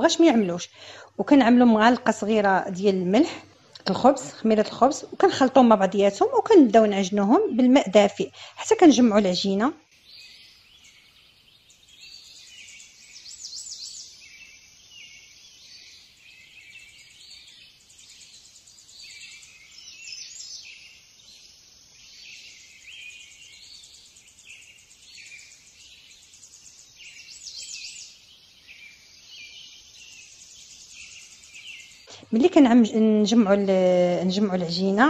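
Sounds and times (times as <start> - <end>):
small songbirds chirping: 0.0 - 35.0.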